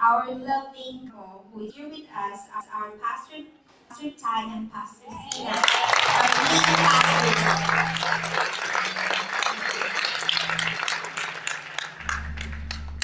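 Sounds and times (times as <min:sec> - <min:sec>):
congregation applauding: 0:05.3 - 0:13.0.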